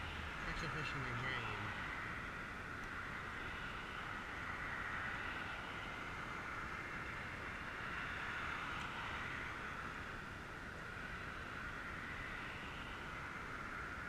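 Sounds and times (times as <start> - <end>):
road traffic passing: 0.0 - 14.0.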